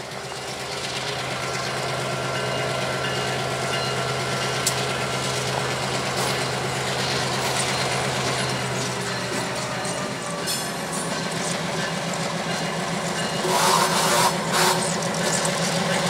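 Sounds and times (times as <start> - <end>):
train rolling noise: 0.0 - 16.0.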